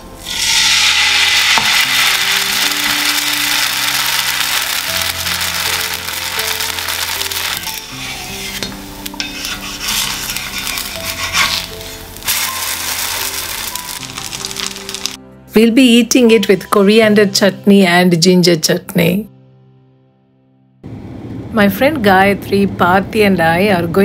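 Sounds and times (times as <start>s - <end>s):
background music: 0.0s - 20.9s
pancake sizzling on griddle: 0.1s - 15.2s
wooden spatula scraping: 5.4s - 15.2s.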